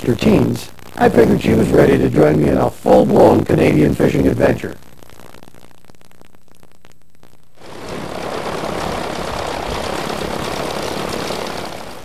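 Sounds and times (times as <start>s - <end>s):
propeller plane engine running: 7.6s - 12.0s.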